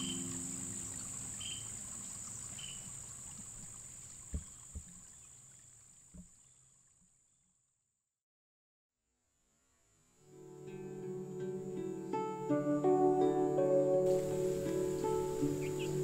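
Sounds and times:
background music note: 0:00.0 - 0:01.1, 0:10.3 - 0:16.0
soft knocks: 0:04.3 - 0:05.1.

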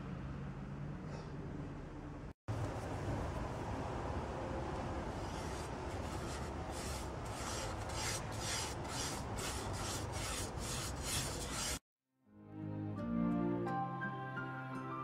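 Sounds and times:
brush rubbing oil over a pan: 0:05.1 - 0:11.8
soft music: 0:12.2 - 0:15.0.

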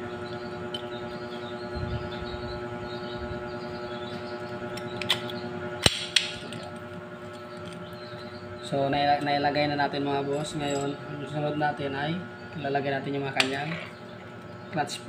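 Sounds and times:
steady background hum: 0:00.0 - 0:15.0
sharp metal clicks: 0:04.7 - 0:06.6.

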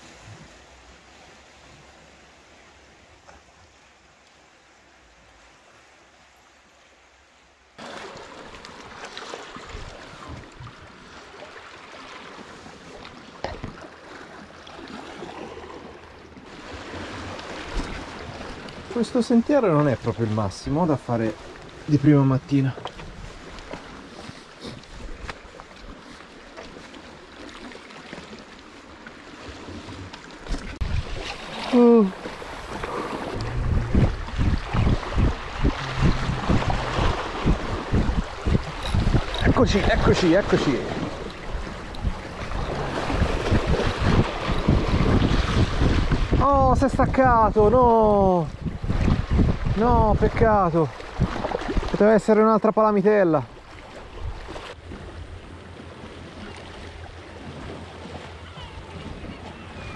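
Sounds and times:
wind: 0:00.0 - 0:59.9
sea water washing on rocks: 0:07.8 - 0:52.4
man grunting: 0:35.8 - 0:37.0.

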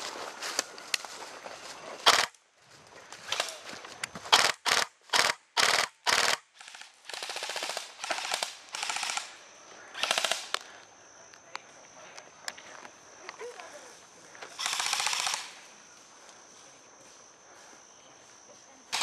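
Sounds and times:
airsoft rifle bursts: 0:02.0 - 0:02.4, 0:04.3 - 0:10.6, 0:14.5 - 0:15.7.

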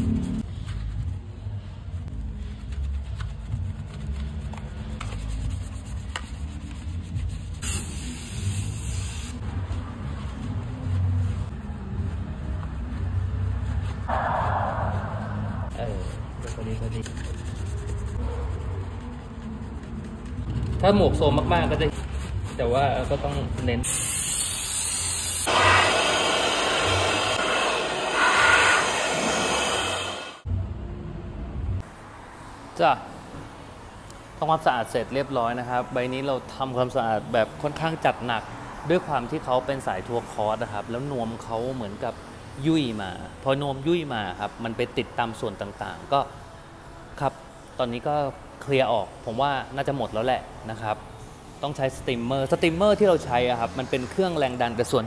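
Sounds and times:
brushes scrubbing foam: 0:02.2 - 0:07.7, 0:15.7 - 0:20.5
steam jet hissing: 0:23.8 - 0:30.5.

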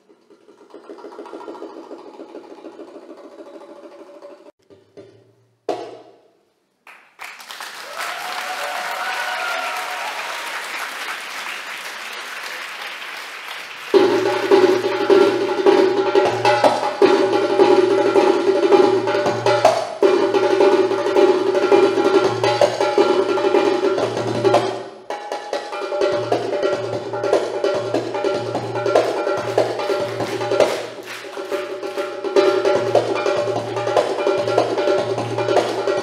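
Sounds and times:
darbuka drum rolls and strokes: 0:00.0 - 0:06.3, 0:13.9 - 0:36.0
audience applause and cheering: 0:06.9 - 0:15.2, 0:29.1 - 0:32.5.

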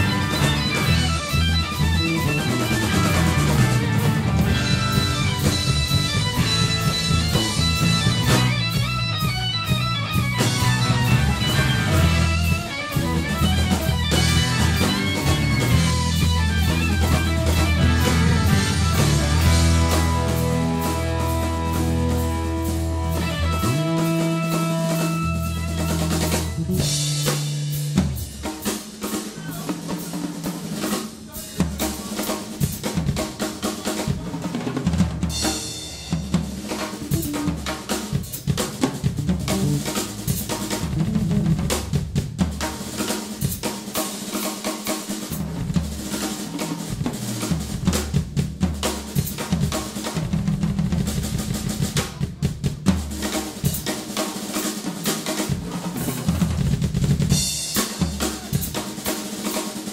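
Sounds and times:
guitar and bass chord: 0:00.0 - 0:27.2
drum solo: 0:00.0 - 0:59.9.

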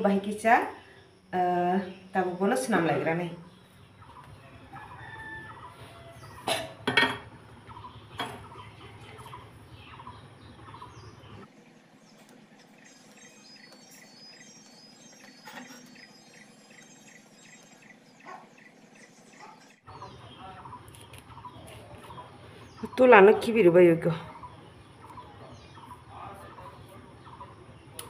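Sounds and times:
faint chirps: 0:07.4 - 0:23.4.

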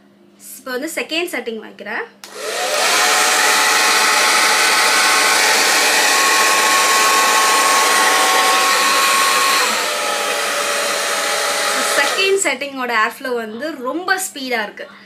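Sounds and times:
hair dryer running: 0:02.2 - 0:12.4.

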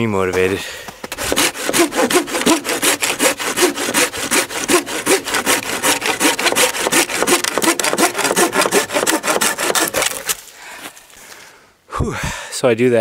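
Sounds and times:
hand saw cutting wood: 0:01.0 - 0:10.4.

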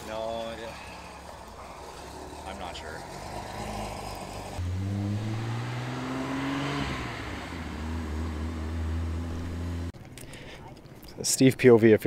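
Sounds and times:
car engine revving: 0:00.8 - 0:10.0.

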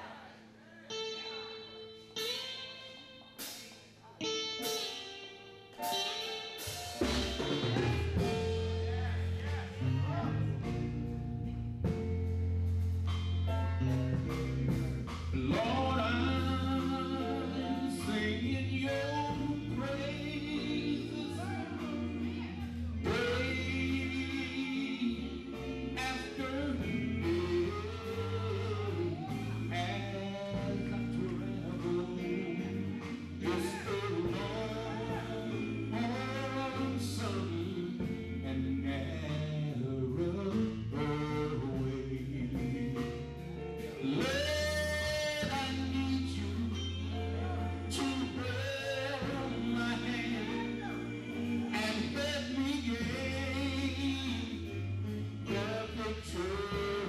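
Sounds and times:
electric guitar: 0:00.0 - 0:57.0
low bass notes: 0:01.0 - 0:57.0
male vocal quartet singing: 0:15.4 - 0:43.2, 0:44.0 - 0:57.0
male quartet singing in harmony: 0:44.1 - 0:57.0.

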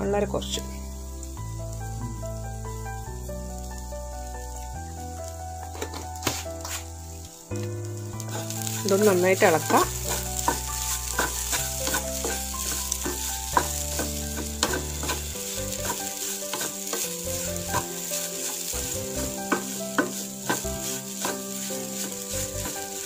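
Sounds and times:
light sizzle: 0:00.0 - 0:23.0
spatula scraping a pan: 0:08.2 - 0:23.0.

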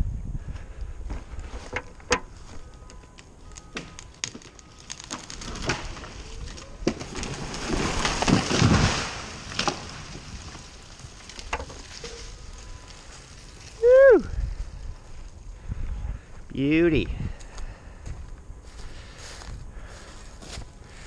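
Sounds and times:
tree wood cracking: 0:01.1 - 0:14.0
tree trunk hitting ground: 0:03.6 - 0:12.3
branches rushing through canopy: 0:04.2 - 0:14.1.

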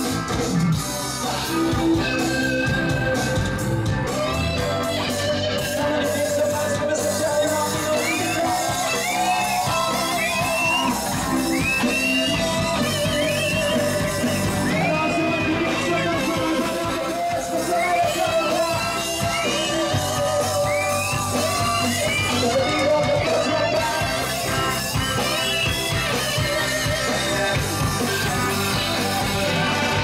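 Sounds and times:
bass guitar: 0:00.0 - 0:30.0
drums: 0:00.0 - 0:30.0
electric guitar lead line: 0:00.0 - 0:30.0.

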